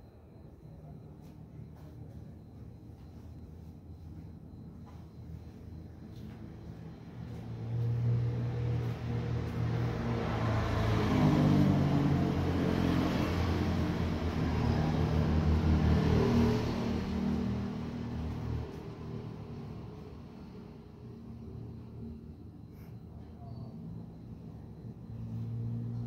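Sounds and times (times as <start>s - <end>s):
motor vehicle engine running: 7.1s - 21.9s.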